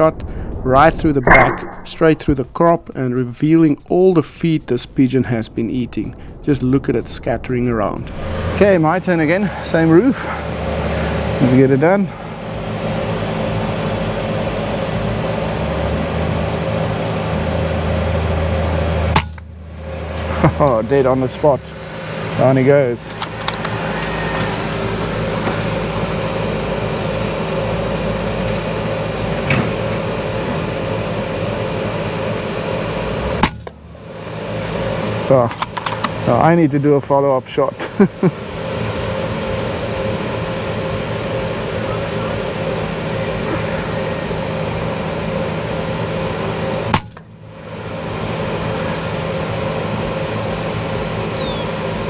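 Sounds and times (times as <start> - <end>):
steady machine hum: 0.0 - 52.0
silenced air rifle shot: 1.2 - 2.5, 19.1 - 19.5, 33.4 - 33.8.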